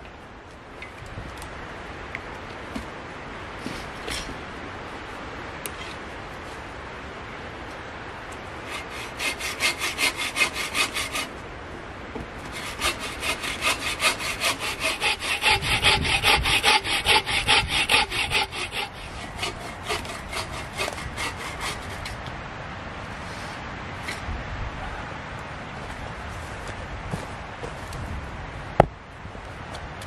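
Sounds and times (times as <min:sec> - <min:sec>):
hand saw cutting wood: 0:08.6 - 0:11.3, 0:12.4 - 0:22.2.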